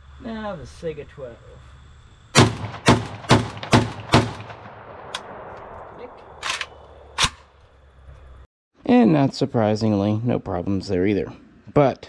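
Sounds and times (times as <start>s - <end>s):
shotgun firing rapid shots: 2.3s - 5.8s.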